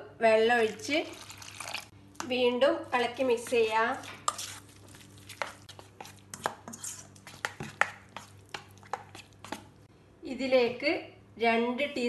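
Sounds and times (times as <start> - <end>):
metal spoon stirring in steel bowl: 0.8 - 9.8.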